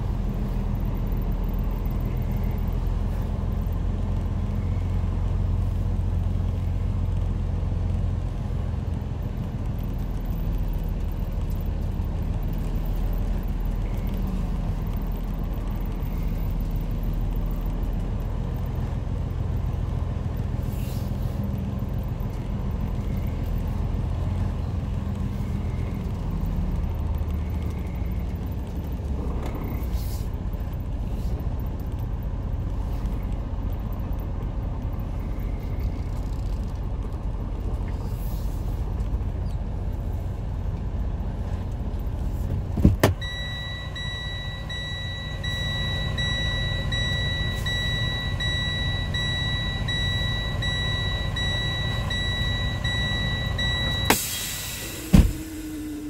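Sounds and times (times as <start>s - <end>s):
diesel truck engine rumbling: 0.0s - 56.0s
high electronic warning tone: 43.2s - 54.2s.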